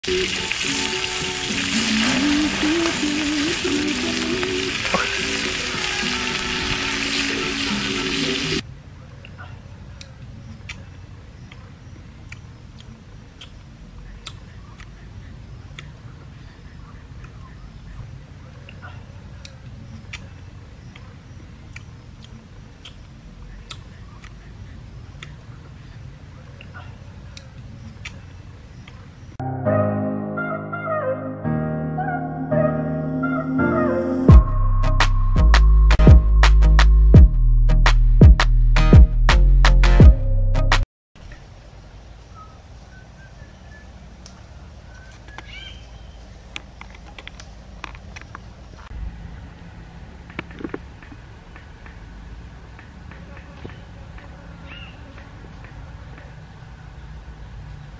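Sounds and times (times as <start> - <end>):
bird whistling: 42.3 - 43.9, 44.9 - 46.2.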